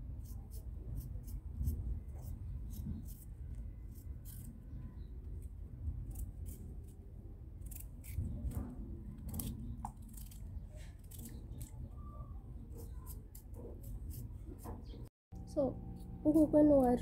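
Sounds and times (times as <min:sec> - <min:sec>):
knife scraping potato skin: 0:00.2 - 0:05.1, 0:07.6 - 0:08.6, 0:09.2 - 0:11.8, 0:12.7 - 0:15.0.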